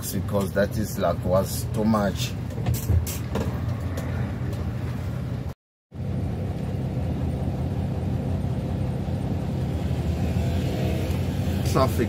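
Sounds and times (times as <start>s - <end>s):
road noise: 0.0s - 12.0s
vehicle engine rumble: 0.0s - 12.0s.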